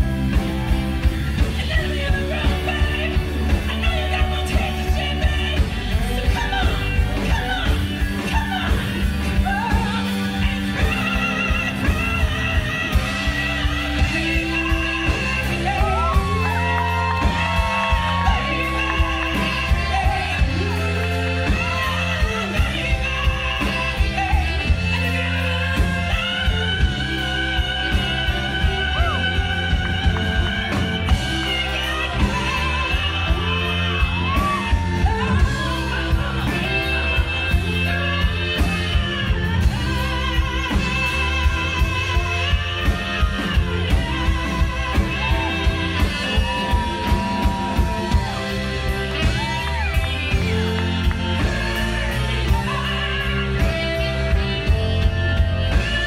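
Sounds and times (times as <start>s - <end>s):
electric guitar: 0.0s - 56.0s
steady drum beat: 0.0s - 56.0s
woman singing: 0.0s - 56.0s.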